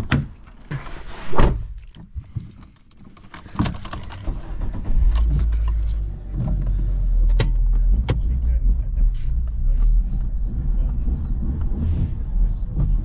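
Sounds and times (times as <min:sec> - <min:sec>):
car engine starting: 0:03.2 - 0:13.0.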